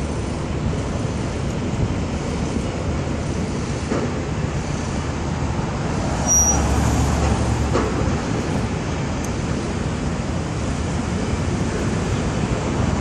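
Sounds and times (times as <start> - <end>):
distant traffic rumble: 0.0 - 13.0
brief high squeal: 6.2 - 6.7.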